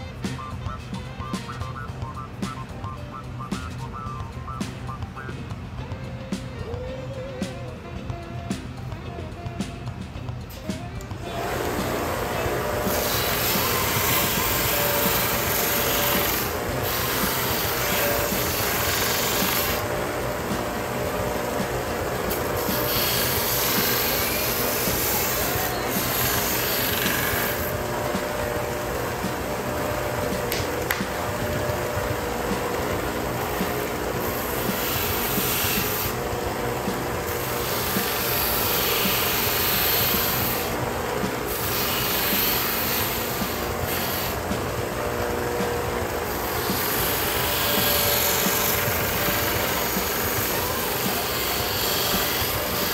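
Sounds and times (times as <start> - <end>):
belt sander grinding leather: 11.2 - 52.9.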